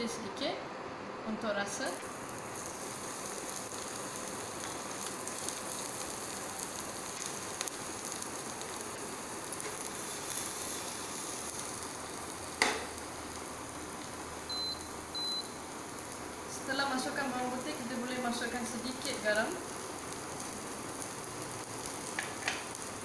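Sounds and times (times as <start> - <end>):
garlic sizzling in oil: 1.8 - 23.0
pan knocking on cooktop: 12.6 - 12.9.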